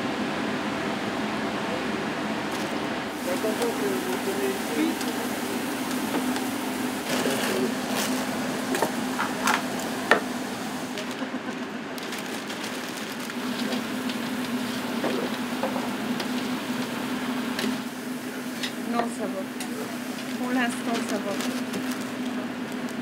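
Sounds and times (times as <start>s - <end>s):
fries sizzling in oil: 2.5s - 11.2s, 12.5s - 23.0s.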